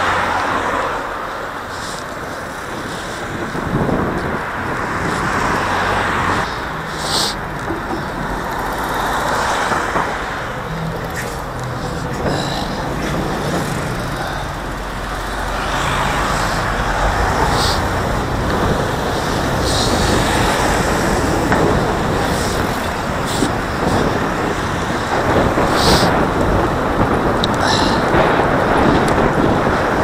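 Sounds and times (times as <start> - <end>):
vehicle engine and road noise: 0.0 - 30.0.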